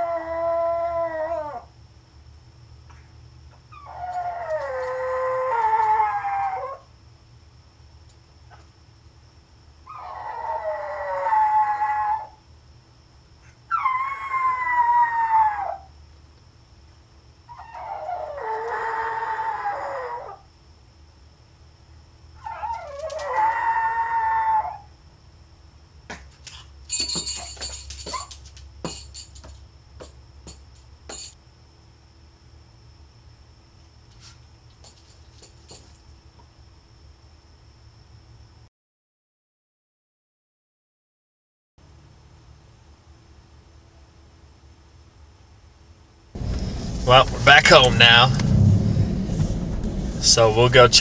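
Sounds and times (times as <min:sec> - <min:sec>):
dog howling: 0:00.0 - 0:01.7, 0:03.7 - 0:06.9, 0:09.8 - 0:12.4, 0:13.7 - 0:16.0, 0:17.5 - 0:20.5, 0:22.4 - 0:25.0.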